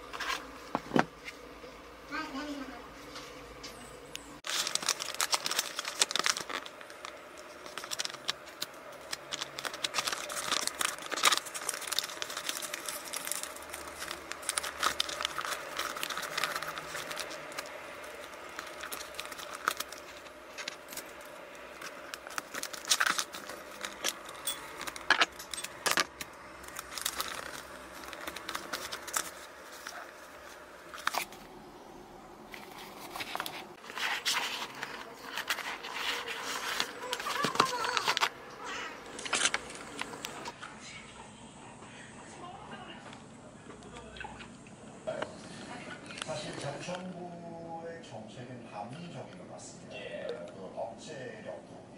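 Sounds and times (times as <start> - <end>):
paper crackles: 4.4 - 31.7, 32.4 - 40.6
wrapping paper crinkling: 4.4 - 31.7, 32.4 - 40.6.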